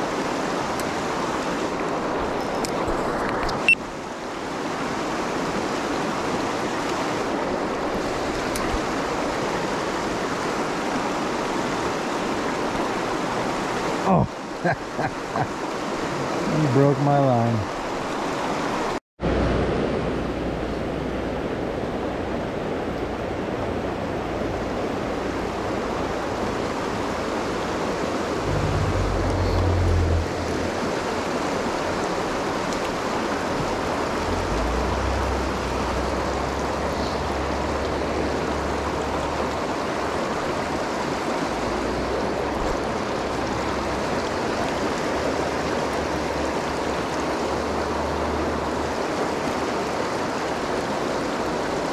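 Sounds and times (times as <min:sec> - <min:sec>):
river rapids rushing: 0:00.0 - 0:51.9
low rumble: 0:28.3 - 0:31.0.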